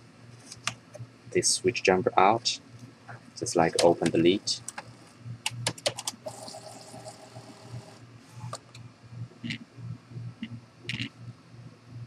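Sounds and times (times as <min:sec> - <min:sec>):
printer carriage motor running: 0:06.2 - 0:08.0.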